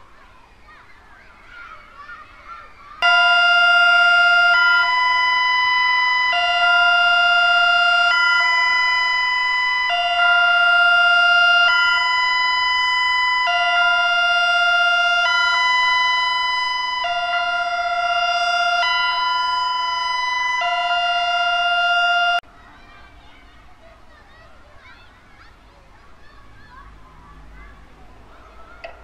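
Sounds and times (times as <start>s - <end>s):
two-tone warning siren wail: 3.0s - 22.4s.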